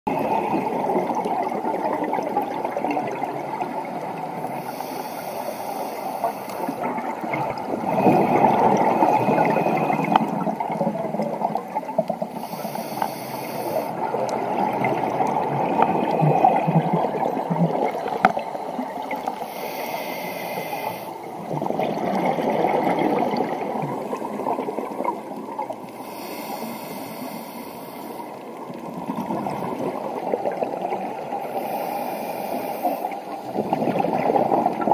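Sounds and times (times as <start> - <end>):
exhaled bubbles rushing: 0.1 - 4.4, 6.8 - 12.3, 14.0 - 19.4, 21.4 - 25.9, 28.6 - 31.4, 33.5 - 34.9
regulator inhalation hiss: 4.4 - 6.9, 12.3 - 14.0, 19.4 - 21.2, 25.9 - 28.4, 31.4 - 33.4.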